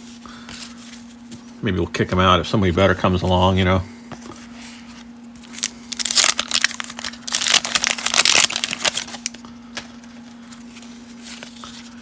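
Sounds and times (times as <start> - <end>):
wax paper wrapper crinkling: 5.3 - 12.0.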